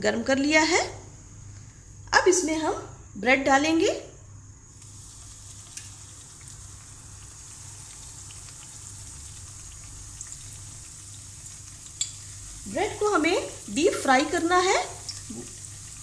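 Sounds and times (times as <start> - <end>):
bread deep-frying in oil: 4.7 - 16.0
oil crackling: 4.7 - 16.0.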